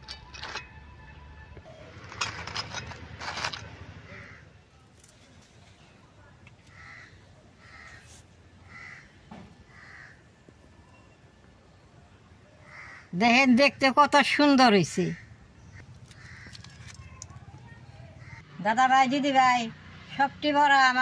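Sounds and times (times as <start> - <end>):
crows cawing: 4.1 - 4.5, 6.6 - 10.4, 12.6 - 13.2, 15.1 - 17.0, 18.1 - 18.5.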